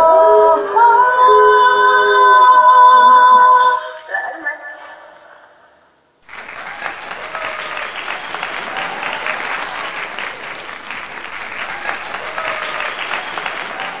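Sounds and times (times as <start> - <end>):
crowd applause: 6.2 - 14.0.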